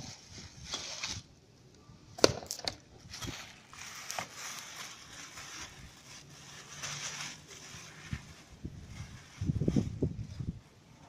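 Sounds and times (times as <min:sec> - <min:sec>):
plastic wrapping crinkling: 0:02.2 - 0:11.0.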